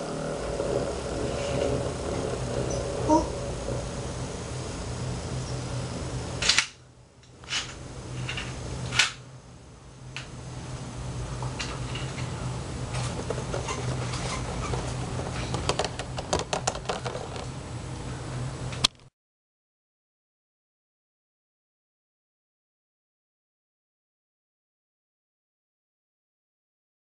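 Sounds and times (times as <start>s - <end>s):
spinning top whirring: 0.0s - 9.3s, 10.2s - 17.8s.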